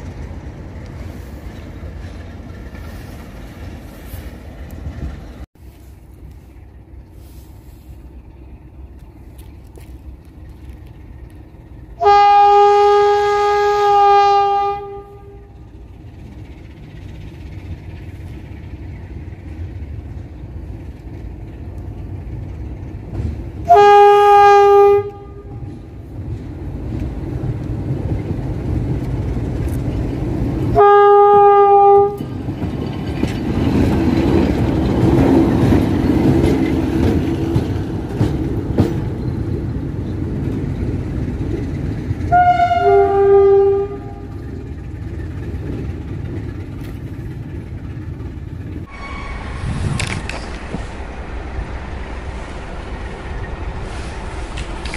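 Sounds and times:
diesel locomotive engine: 0.0s - 54.9s
locomotive horn blasts: 12.0s - 15.7s, 23.6s - 25.8s, 30.7s - 32.3s, 42.3s - 44.4s.

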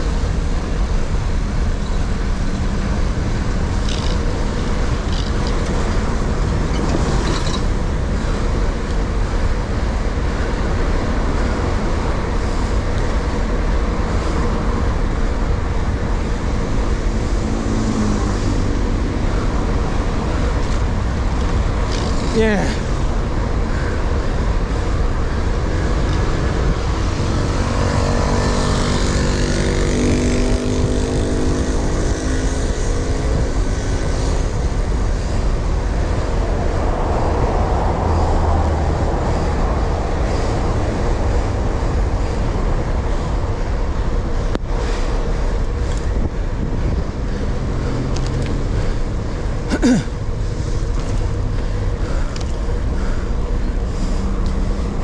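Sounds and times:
wind and road rumble: 0.0s - 55.0s
vehicle engine passing: 16.5s - 23.1s, 25.0s - 34.5s.

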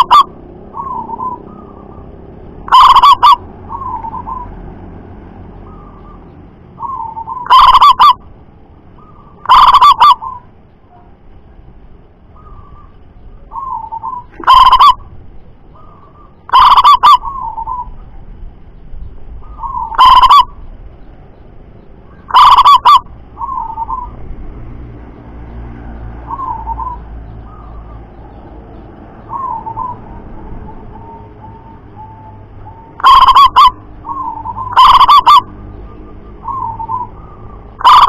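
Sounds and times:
dove cooing: 0.0s - 4.6s, 6.8s - 8.2s, 9.0s - 10.5s, 12.3s - 15.1s, 15.7s - 18.1s, 19.4s - 20.6s, 22.1s - 24.2s, 26.2s - 28.5s, 29.2s - 38.0s.

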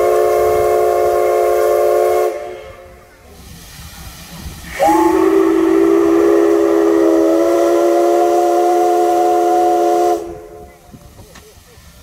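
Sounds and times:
steam locomotive whistle blast: 0.0s - 3.1s, 4.6s - 10.8s.

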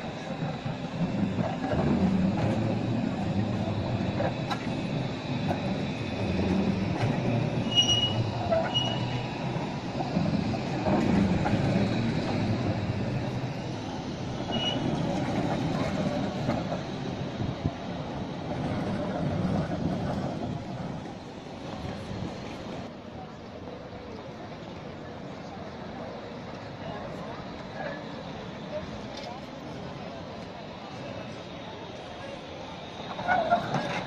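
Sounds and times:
tram wheels rumbling on rails: 0.0s - 34.0s
high wheel squeals: 5.7s - 9.8s, 14.4s - 15.3s.

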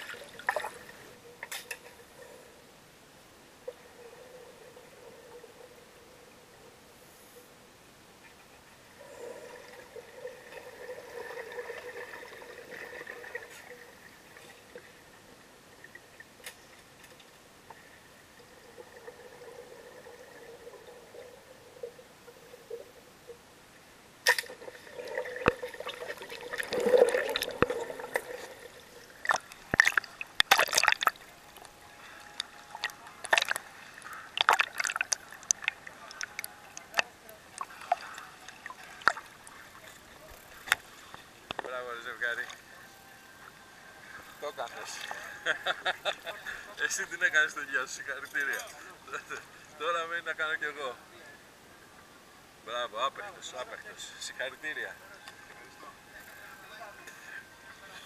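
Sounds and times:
water splashing and dripping: 0.0s - 1.7s, 24.2s - 41.6s
muffled underwater bubbling: 24.4s - 40.8s.

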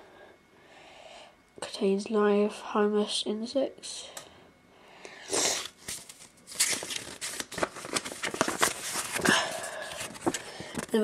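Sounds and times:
cardboard crackling with clicks: 5.8s - 11.0s
cardboard box rustling: 5.9s - 10.5s.

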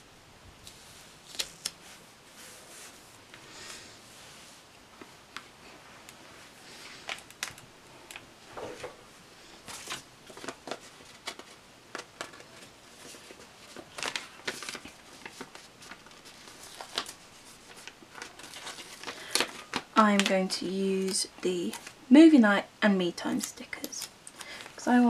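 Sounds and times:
paper rustling and crinkling: 0.6s - 3.8s, 9.6s - 22.0s.

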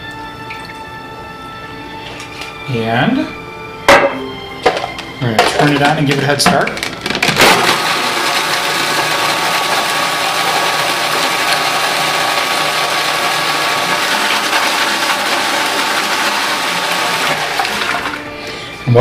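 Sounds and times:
food processor motor whirring: 6.8s - 18.4s.

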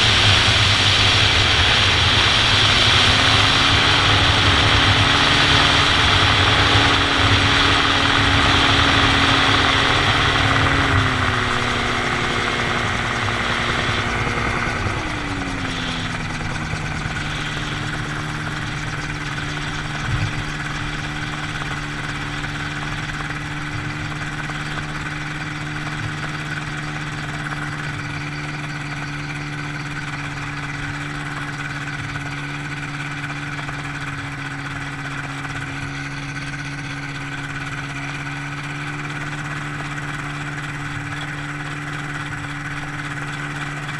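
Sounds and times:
rush of wind: 0.0s - 28.2s
gyroplane engine and propeller: 0.0s - 43.9s.

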